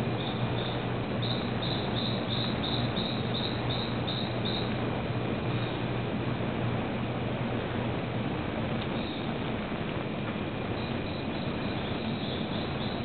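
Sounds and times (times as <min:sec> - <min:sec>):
low hum and hiss: 0:00.0 - 0:13.0
animal chirping: 0:00.2 - 0:04.7, 0:10.8 - 0:13.0.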